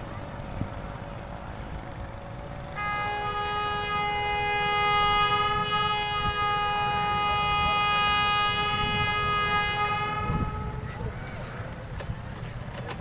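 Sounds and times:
locomotive horn blast: 2.6s - 11.7s.

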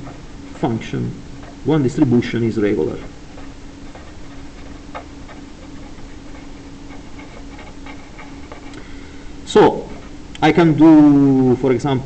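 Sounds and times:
marker scratching on paper: 0.0s - 8.8s, 9.5s - 10.2s
faint steady hum: 0.0s - 12.0s.

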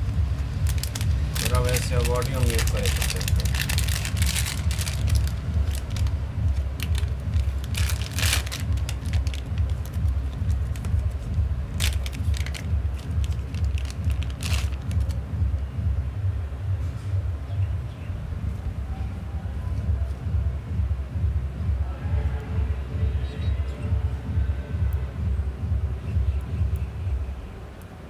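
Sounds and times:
paper wrapper crackling: 0.0s - 15.2s
plastic bag crinkling: 0.0s - 15.2s
steady low rumble: 0.0s - 28.0s.

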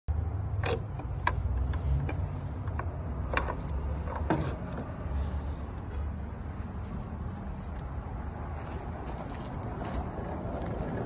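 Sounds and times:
steady low rumble: 0.1s - 11.0s
metal gate latch clicking: 0.5s - 1.4s.

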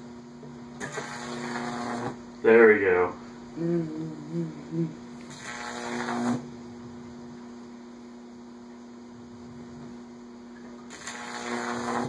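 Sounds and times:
electric arc crackling and buzzing: 0.6s - 3.2s, 5.2s - 6.8s, 10.8s - 12.0s.

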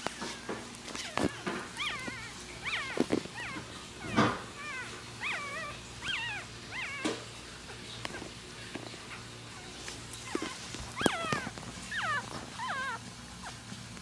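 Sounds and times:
puppies squeaking: 0.9s - 8.4s, 10.0s - 13.7s.

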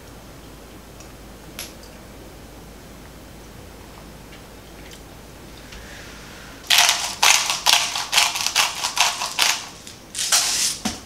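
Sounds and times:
salt grinder crunching: 6.7s - 10.8s.

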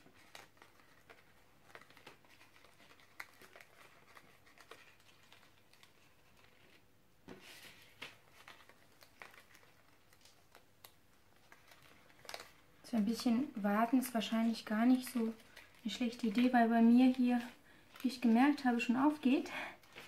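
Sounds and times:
small paper clicks: 0.0s - 6.8s, 7.4s - 13.3s
paper crinkling and rustling: 0.0s - 20.0s.

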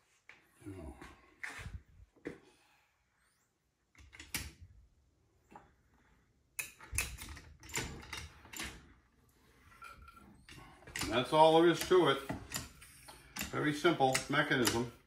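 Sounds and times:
metal lever clicking and scraping: 6.6s - 9.0s, 9.7s - 15.0s.

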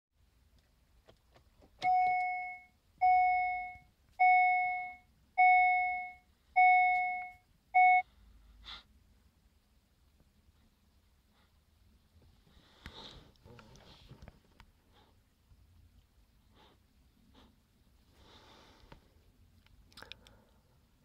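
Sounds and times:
car warning chime dings: 1.8s - 8.0s
faint clicks: 19.6s - 20.5s.

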